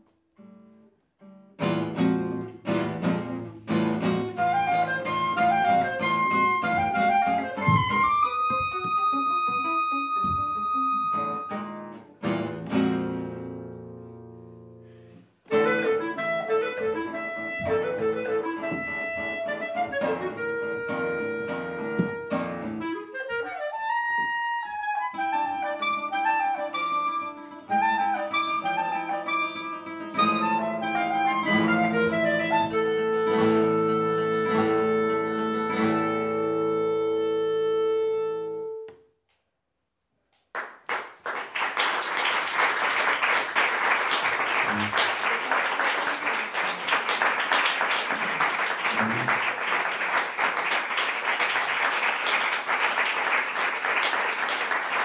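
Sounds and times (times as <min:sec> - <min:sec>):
clarinet and classical guitar playing: 0:00.4 - 0:38.9, 0:44.0 - 0:46.7, 0:48.4 - 0:49.6
audience applause: 0:40.6 - 0:55.0.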